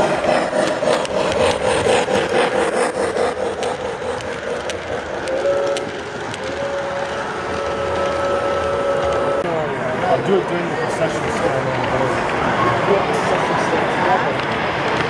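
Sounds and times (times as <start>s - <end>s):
wheels clicking over rail joints: 0.0s - 9.4s
model train wheels rumbling: 0.0s - 15.0s.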